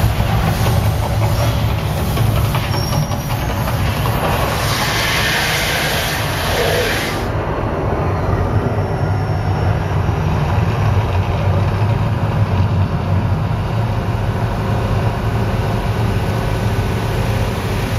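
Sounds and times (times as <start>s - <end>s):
low rumble of flames: 3.7s - 17.9s.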